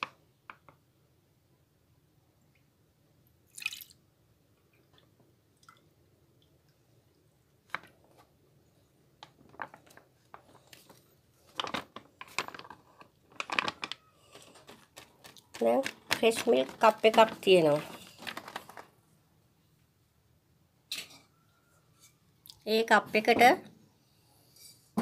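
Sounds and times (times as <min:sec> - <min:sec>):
plastic pouch crinkling: 0:09.6 - 0:19.0.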